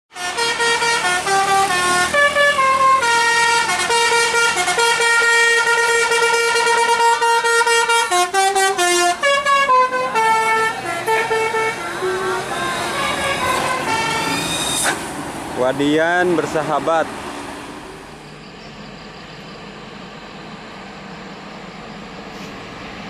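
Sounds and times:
bus horn playing a tune: 0.1 - 15.0
bus engine rumbling: 0.1 - 23.0.

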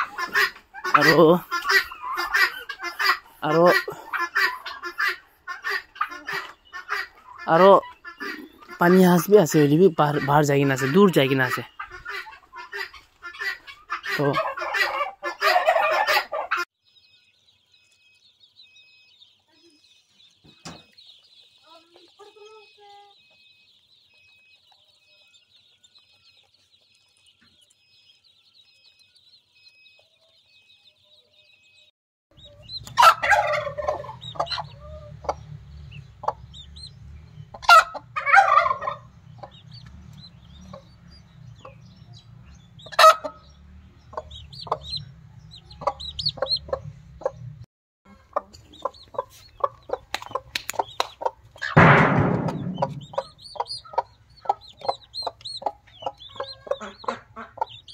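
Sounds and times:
hen clucking: 0.0 - 16.7, 18.2 - 28.0, 32.3 - 57.9
chicks peeping: 0.0 - 57.9
low steady rumble: 33.9 - 47.6.

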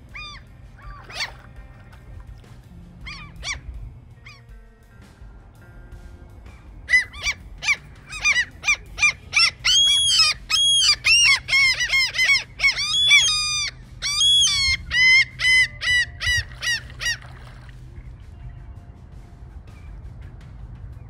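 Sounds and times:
gulls calling: 0.0 - 18.0.

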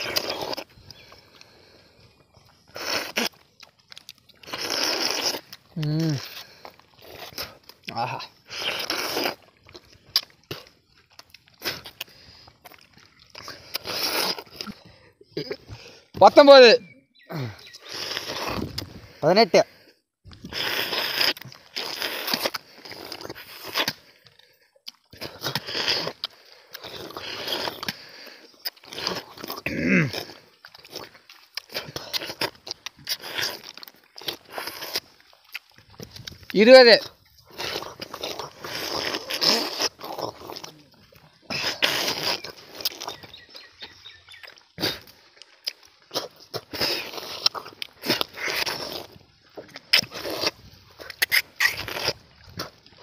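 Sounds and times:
lip smacks: 0.0 - 15.9, 17.3 - 19.0, 20.3 - 53.0
chewing: 0.0 - 16.2, 17.2 - 53.0
people slurping fruit: 0.0 - 53.0.

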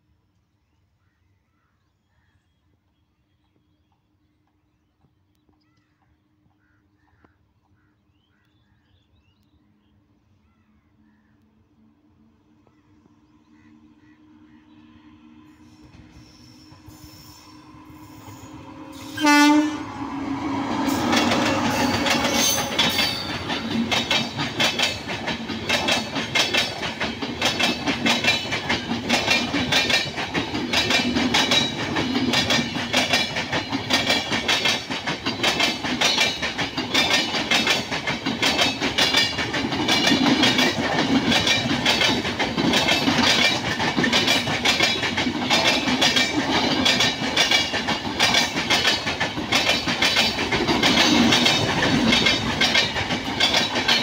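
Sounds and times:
train wheels clattering over rails: 15.8 - 54.0
locomotive horn blast: 16.8 - 23.4.

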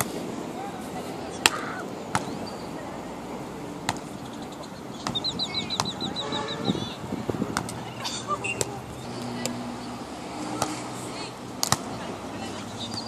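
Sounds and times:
bird chirping: 2.2 - 2.8, 4.1 - 7.0.

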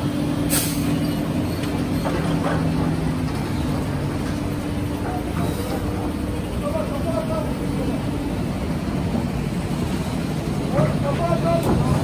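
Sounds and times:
heavy diesel engines running: 0.0 - 12.0.

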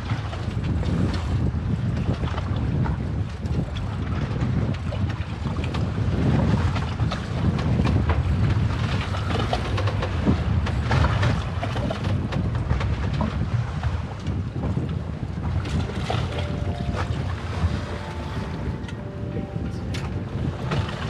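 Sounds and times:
water washing around boat: 0.0 - 21.0
wind rumbling on microphone: 0.0 - 21.0
water splashes: 15.3 - 21.0.

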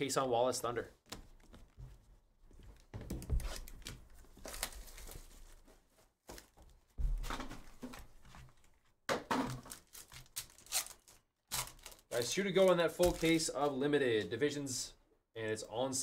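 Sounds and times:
cardboard box and foil rustling: 9.6 - 13.5.

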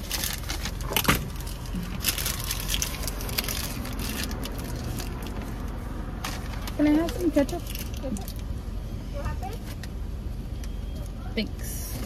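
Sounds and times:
paper bag crinkling: 0.0 - 5.3
car engine idling: 0.0 - 12.0.

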